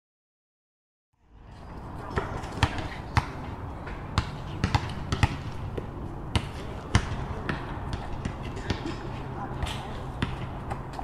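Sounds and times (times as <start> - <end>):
steady background noise: 1.2 - 11.0
basketballs bouncing on hard court: 2.1 - 8.9, 9.6 - 11.0.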